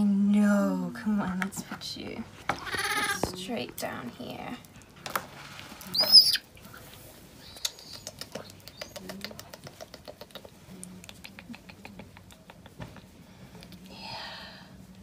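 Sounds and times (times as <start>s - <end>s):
baby monkey squealing: 5.9s - 6.4s.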